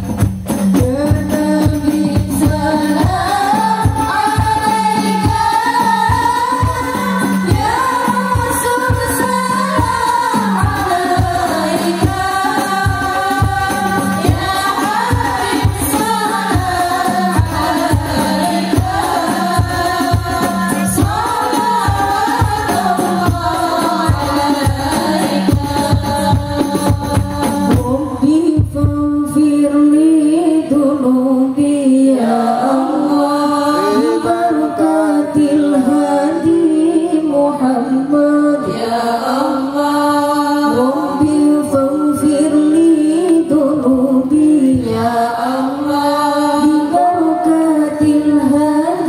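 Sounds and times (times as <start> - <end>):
frame drums beating: 0.0 - 29.4
women singing together: 0.7 - 49.0.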